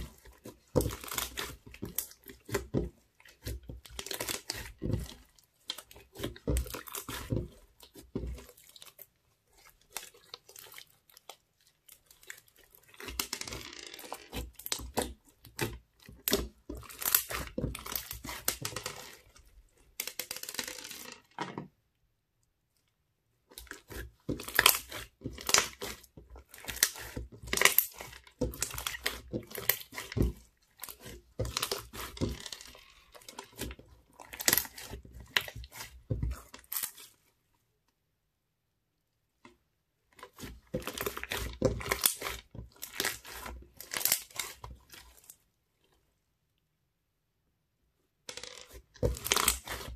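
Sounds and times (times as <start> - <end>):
crunchy slime crackling and popping: 0.0 - 19.3, 23.5 - 37.1, 40.2 - 45.3, 48.7 - 49.9.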